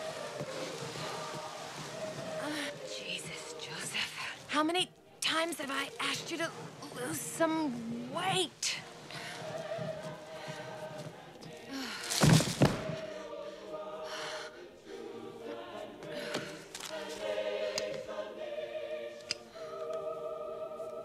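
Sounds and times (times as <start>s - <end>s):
choir singing sustained chords: 0.0s - 21.0s
heavy thud: 12.1s - 13.1s.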